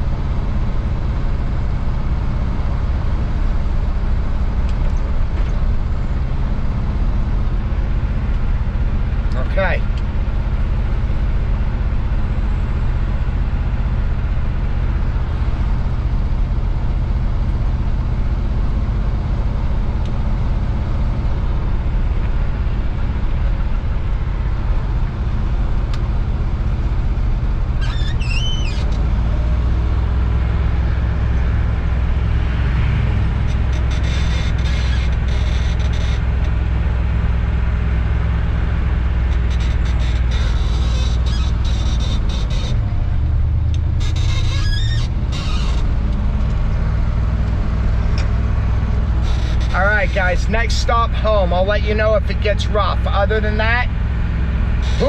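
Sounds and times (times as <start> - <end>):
vehicle engine and road noise: 0.0 - 55.0
brief high squeak: 27.8 - 29.0, 39.5 - 42.8, 44.0 - 45.9, 49.2 - 50.2, 54.8 - 55.0.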